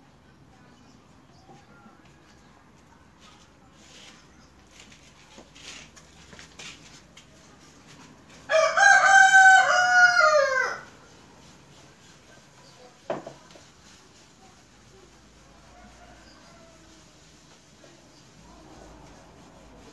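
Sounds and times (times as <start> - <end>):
rooster crowing: 8.5 - 10.9, 15.7 - 17.1.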